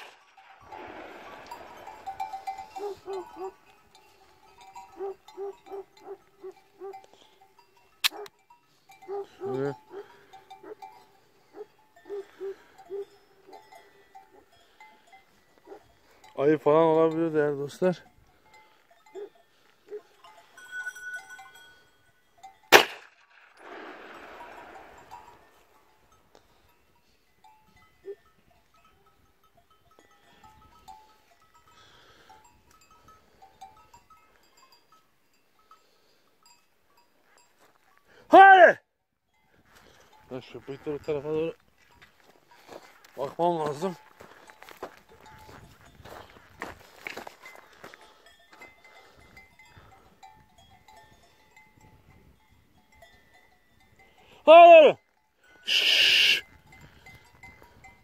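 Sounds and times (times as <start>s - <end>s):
cowbells clanking: 0.0s - 38.4s, 39.3s - 58.0s
livestock bells tinkling: 0.0s - 58.0s.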